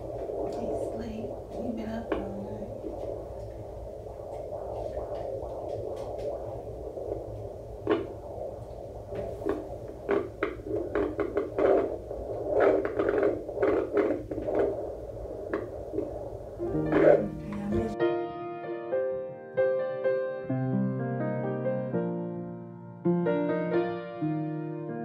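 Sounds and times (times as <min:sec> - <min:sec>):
fetal doppler whooshing: 0:00.0 - 0:18.0
heartbeat pulses: 0:00.0 - 0:18.0.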